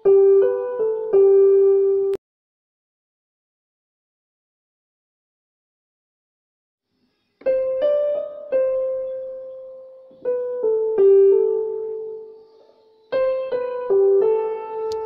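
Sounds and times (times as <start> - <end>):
slow piano melody: 0.0 - 2.2, 7.4 - 15.0.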